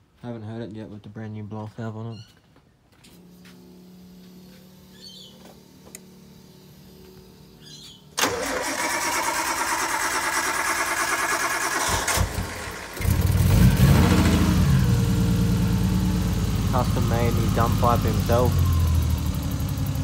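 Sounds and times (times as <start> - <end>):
car engine cranking and starting: 8.2 - 20.0
car engine running loudly: 11.9 - 20.0.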